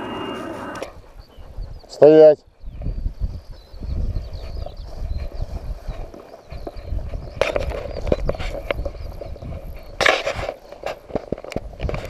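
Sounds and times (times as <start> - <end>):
wind rumbling on microphone: 0.0 - 12.0
footsteps through tall grass: 3.4 - 11.8.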